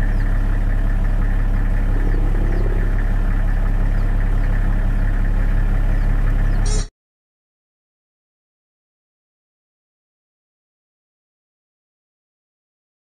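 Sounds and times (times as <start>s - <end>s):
engine-like hum: 0.0s - 6.9s.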